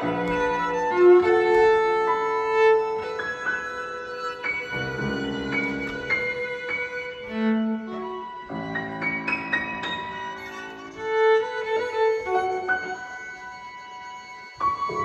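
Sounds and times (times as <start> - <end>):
bowed strings: 0.0 - 15.0
grand piano notes: 0.0 - 15.0.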